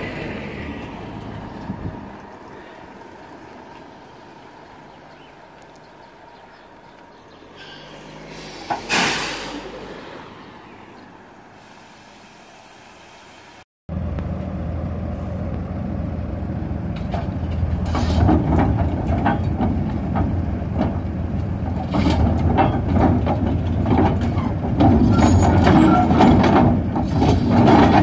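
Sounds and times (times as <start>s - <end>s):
crawler tracks clanking: 16.8s - 28.0s.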